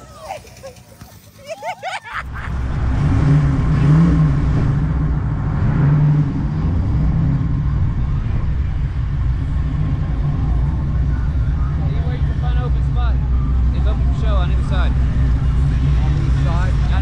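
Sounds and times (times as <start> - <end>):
car engine running: 2.2 - 17.0.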